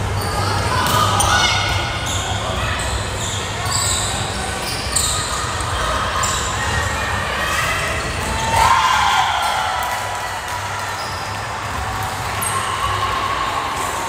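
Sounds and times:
sneakers squeaking on floor: 0.0s - 8.5s.

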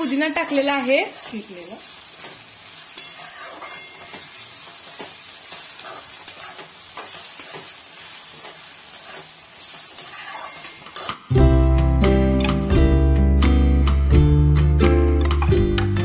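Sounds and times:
onions sizzling in oil: 0.0s - 13.2s
metal spoon scraping pan: 2.9s - 11.3s.

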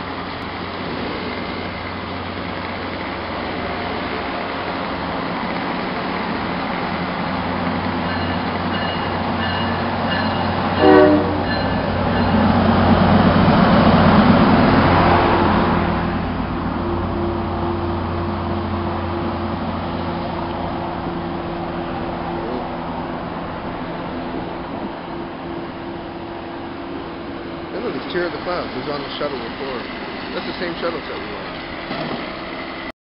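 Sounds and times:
diesel locomotive engine hum: 0.0s - 32.9s
train wheel noise: 0.0s - 32.9s
train horn blast: 10.8s - 11.6s.

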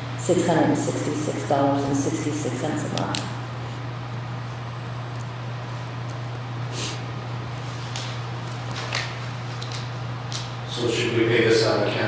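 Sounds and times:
low hum with faint hiss: 0.0s - 12.0s.

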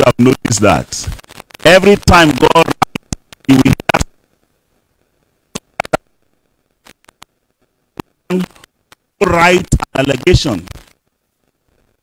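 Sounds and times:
man speaking into a microphone: 0.0s - 2.8s, 3.5s - 4.1s, 8.3s - 8.6s, 9.2s - 10.8s.

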